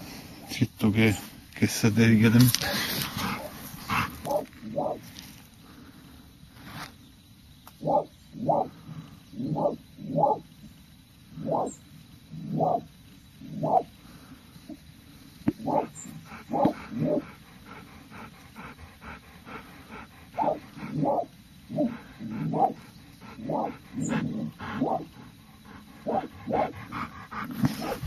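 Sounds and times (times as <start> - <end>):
dog barking: 3.2 - 5.0, 7.8 - 8.7, 9.5 - 10.4, 15.6 - 17.3, 20.4 - 22.8, 23.4 - 25.1, 26.0 - 27.1, 27.7 - 28.0.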